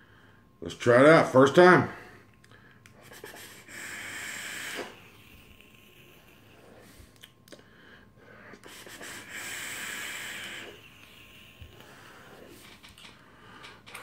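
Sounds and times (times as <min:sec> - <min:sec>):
person breathing out: 0:02.0 - 0:13.9
air hissing through atomizer: 0:03.0 - 0:07.2, 0:08.4 - 0:12.9.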